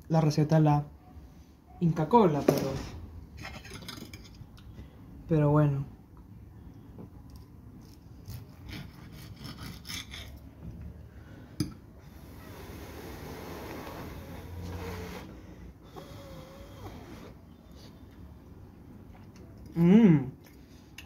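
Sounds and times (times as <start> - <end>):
breathing: 11.0 - 11.6.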